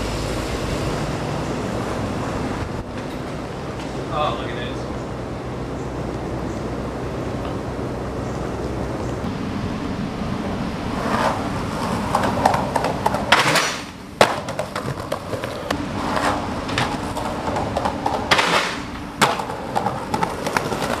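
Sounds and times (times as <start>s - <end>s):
skateboard wheels rolling on concrete: 0.0s - 21.0s
skateboard rasping scrape: 10.9s - 21.0s
skateboard clacking on ground: 11.0s - 21.0s.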